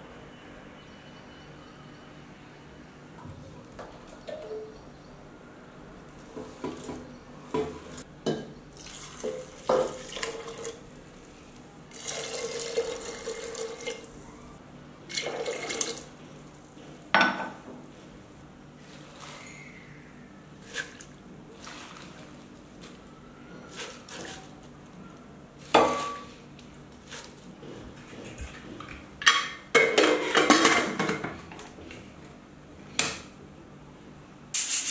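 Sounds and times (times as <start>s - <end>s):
clinks and knocks on metal pot: 7.6s - 8.6s
water splashing into a pot: 8.8s - 10.8s.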